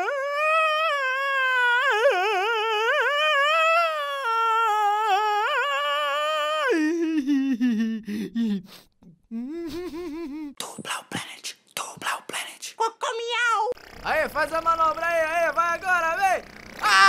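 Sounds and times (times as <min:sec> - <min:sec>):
person humming: 0:00.0 - 0:12.8.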